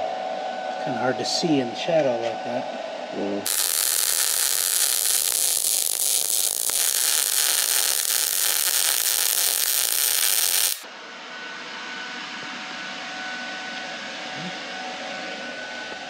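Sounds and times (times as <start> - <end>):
welding arc crackling: 3.5 - 10.8.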